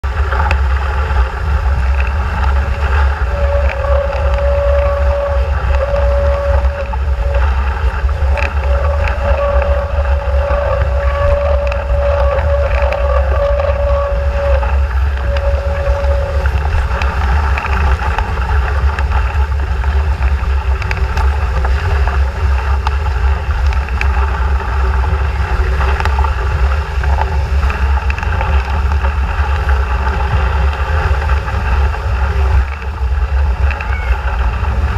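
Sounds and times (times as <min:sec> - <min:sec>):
steady humming tone: 0:00.0 - 0:34.9
water rushing along hull: 0:00.0 - 0:34.9
wind buffeting microphone: 0:00.0 - 0:34.9.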